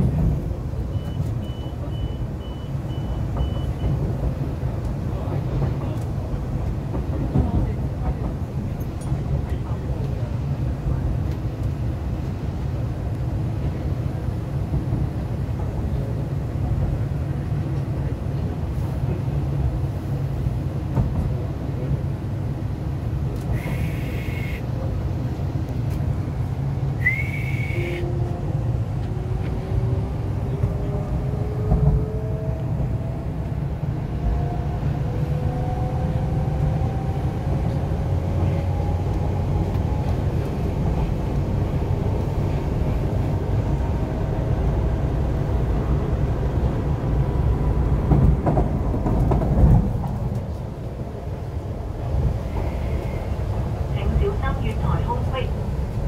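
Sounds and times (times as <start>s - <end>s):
train wheels rumbling on track: 0.0s - 56.0s
short high whistle tones: 27.0s - 28.1s.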